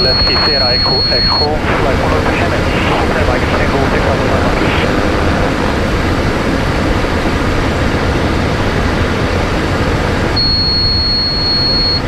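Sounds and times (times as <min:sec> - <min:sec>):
high-pitched tone: 0:00.0 - 0:05.8
jet engines: 0:00.0 - 0:12.0.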